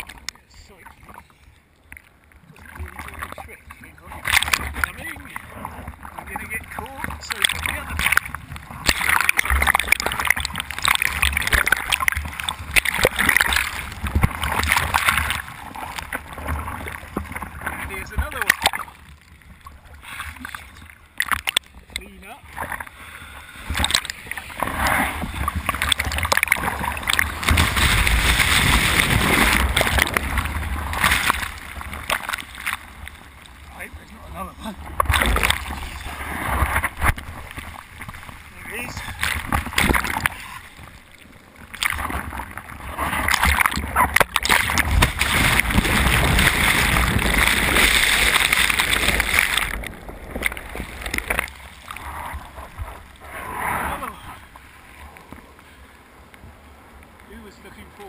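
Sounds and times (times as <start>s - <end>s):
muffled underwater churn: 0.0s - 58.0s
churning whitewater: 2.5s - 58.0s
breaking wave water rushing: 20.0s - 54.6s.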